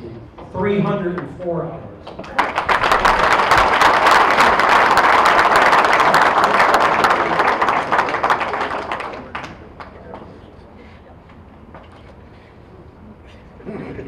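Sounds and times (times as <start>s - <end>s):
audience applauding: 2.2s - 10.2s.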